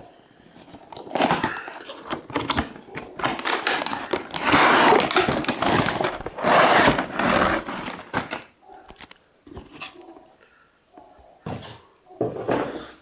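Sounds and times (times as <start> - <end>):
cardboard and paper rustling: 0.5 - 10.3.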